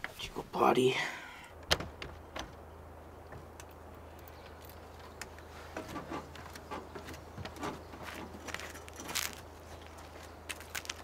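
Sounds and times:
door clicks and knocks: 1.6s - 2.6s
footsteps on metal steps: 1.6s - 3.6s, 4.4s - 11.0s.

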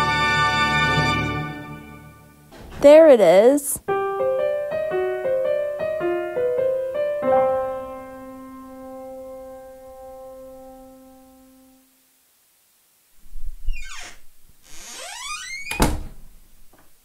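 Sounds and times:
piano music: 0.0s - 2.5s, 3.9s - 11.8s.

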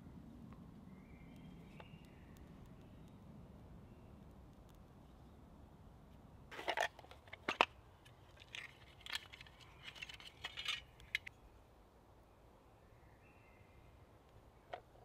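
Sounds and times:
metal tin clinking and rattling: 6.5s - 7.7s, 8.3s - 11.3s.

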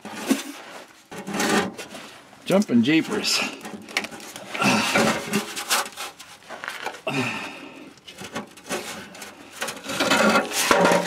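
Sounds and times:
metal scraping and knocking: 0.0s - 2.1s, 3.2s - 7.0s, 8.1s - 11.0s
person grunting: 4.5s - 5.2s, 7.0s - 7.8s.

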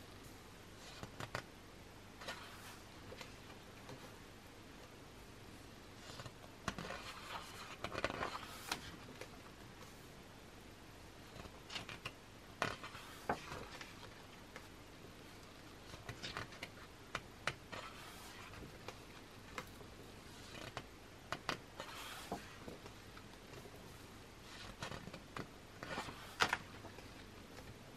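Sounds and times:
paper page swishes: 21.8s - 22.6s.

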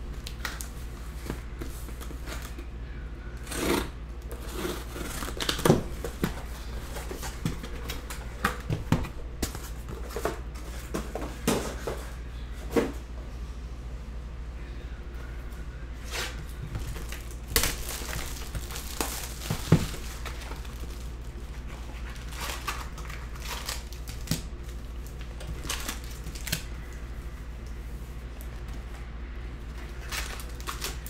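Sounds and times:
scissors cutting tape and cardboard: 3.4s - 5.8s
cardboard rustling: 4.3s - 12.2s, 16.0s - 26.7s.

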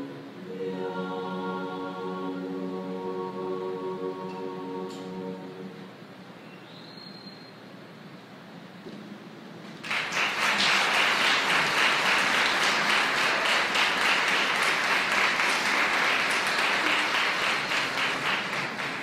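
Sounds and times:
audience applauding: 9.8s - 19.0s.

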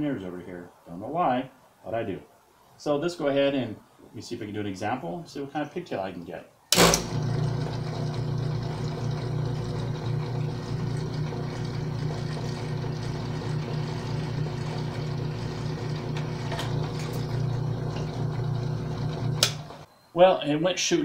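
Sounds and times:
drill press motor humming: 6.8s - 19.9s.

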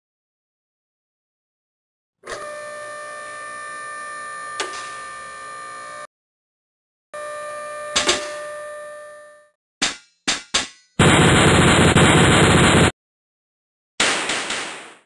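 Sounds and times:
sharp metal clanks: 9.8s - 11.0s
loud rapid metal rattle: 11.0s - 12.9s.

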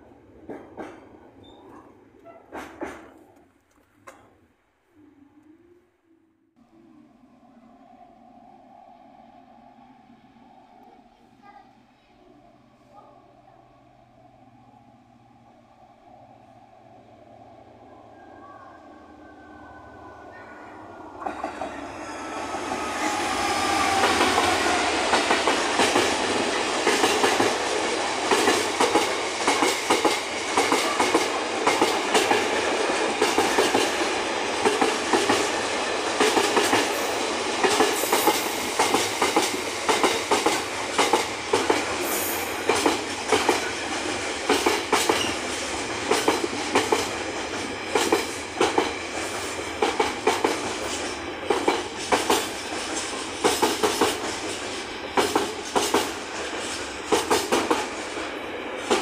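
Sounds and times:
wheels clicking over rail joints: 0.4s - 4.3s
diesel locomotive passing: 6.5s - 59.0s.

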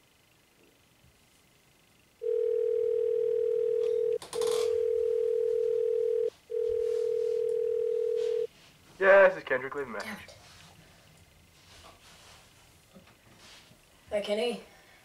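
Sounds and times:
telephone ringback tone: 2.2s - 8.5s.

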